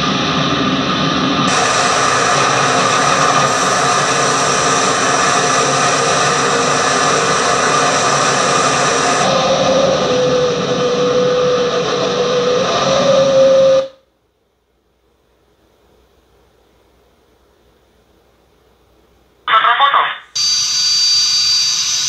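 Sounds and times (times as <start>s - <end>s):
jet engine roar in cockpit: 0.0s - 14.0s, 19.5s - 22.0s.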